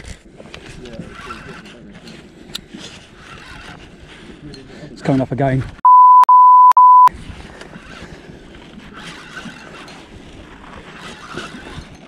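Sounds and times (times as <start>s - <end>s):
censor bleep: 5.8s - 7.1s.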